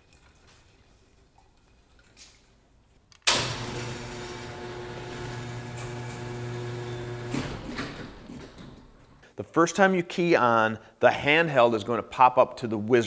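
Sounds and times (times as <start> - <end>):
electric fuel pump humming: 3.3 - 8.4.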